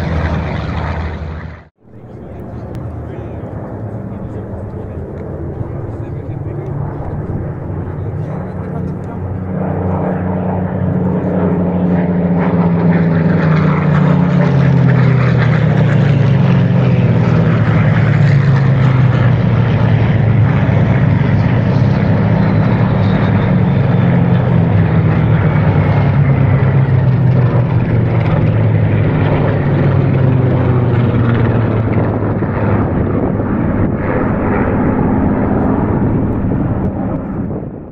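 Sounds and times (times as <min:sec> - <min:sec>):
propeller planes droning past: 0:00.0 - 0:37.9.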